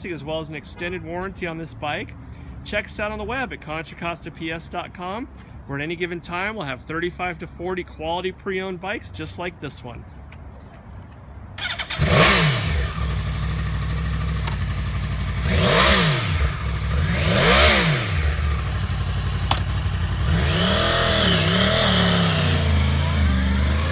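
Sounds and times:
motorcycle engine starting and revving: 0:11.6 - 0:23.9.

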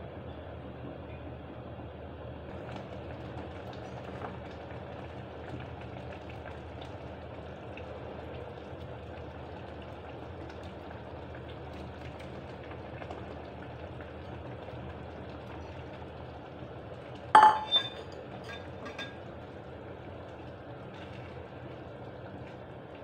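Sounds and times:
utensil clinking on metal cookware: 0:17.4 - 0:19.2.

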